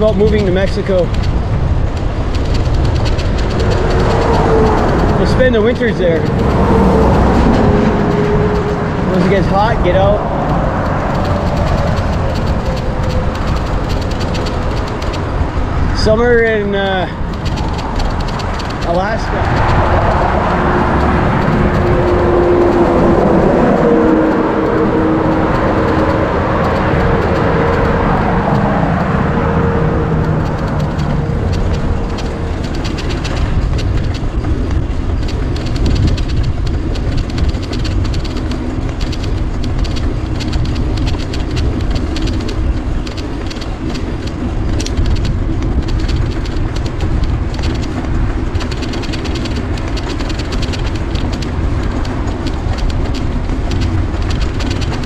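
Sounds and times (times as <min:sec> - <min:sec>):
road and traffic noise: 0:00.0 - 0:55.0
wind on microphone: 0:00.0 - 0:55.0
humming drone dropping in pitch: 0:01.3 - 0:16.2, 0:17.2 - 0:36.6.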